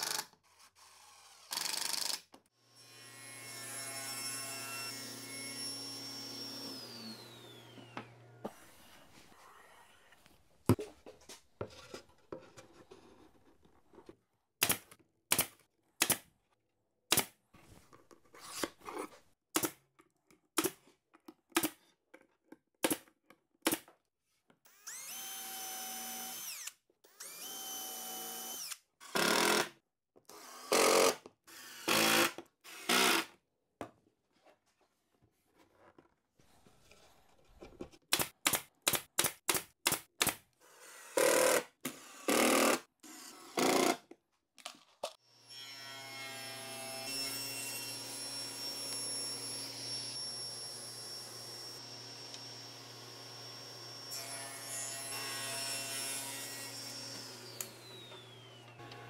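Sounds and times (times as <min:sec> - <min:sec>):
drill whining into plywood: 0:04.4 - 0:08.6, 0:24.7 - 0:29.7, 0:30.3 - 0:33.3, 0:46.7 - 0:55.8, 0:56.6 - 0:59.0
brad nailer shots: 0:14.6 - 0:16.2, 0:30.6 - 0:31.2, 0:31.8 - 0:33.3, 0:38.1 - 0:42.8.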